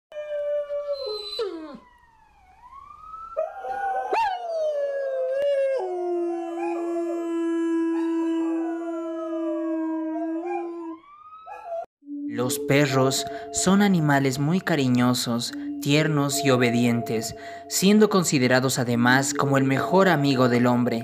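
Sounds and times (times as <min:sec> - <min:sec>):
dogs howling: 0:00.1 - 0:01.9, 0:03.4 - 0:11.9.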